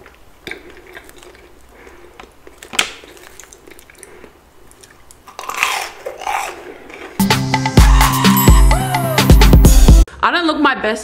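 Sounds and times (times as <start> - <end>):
chewing food: 0.0 - 7.2
soft crackles: 0.0 - 7.2.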